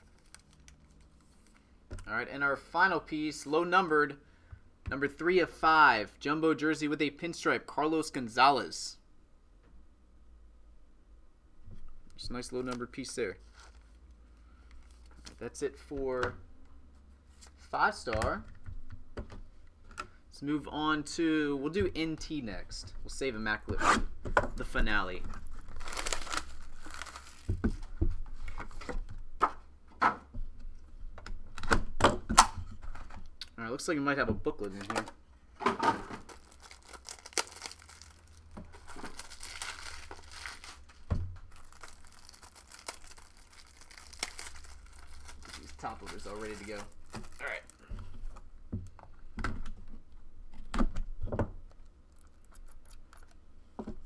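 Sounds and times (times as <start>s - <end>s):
box being handled and opened: 34.6s - 48.5s.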